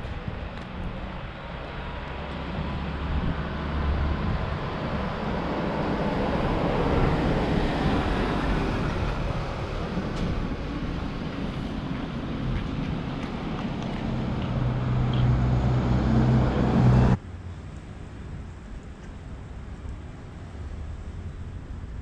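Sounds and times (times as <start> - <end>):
car passing: 1.2 - 17.2.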